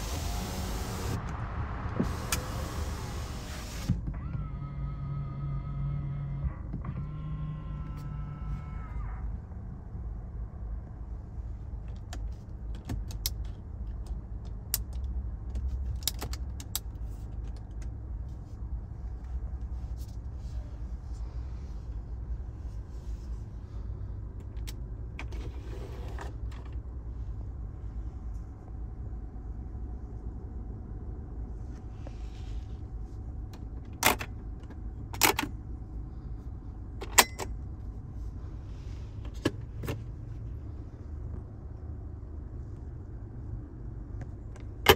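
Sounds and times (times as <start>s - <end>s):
low rumble: 0.0s - 3.9s.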